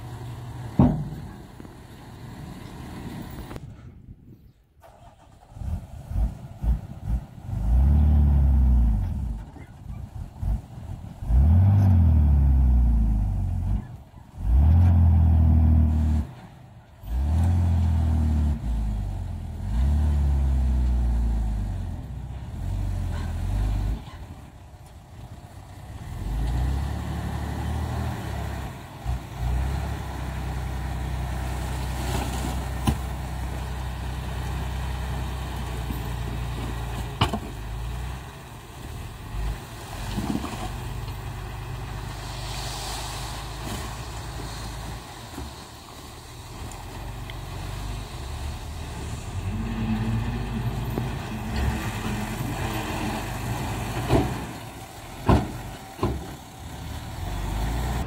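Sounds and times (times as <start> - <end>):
diesel truck engine revving: 4.9 - 9.4, 10.2 - 16.4, 17.0 - 24.2, 25.6 - 36.8, 46.4 - 58.0.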